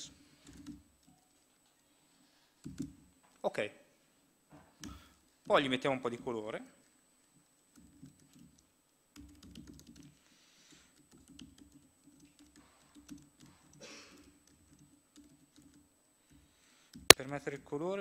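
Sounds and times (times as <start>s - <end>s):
laptop keyboard typing: 0.3s - 1.5s, 2.6s - 3.1s, 7.3s - 15.8s.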